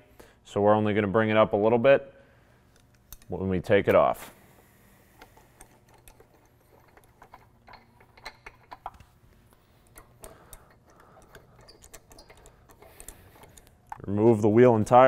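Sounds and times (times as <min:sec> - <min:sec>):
ratchet clicking: 0:09.8 - 0:14.0.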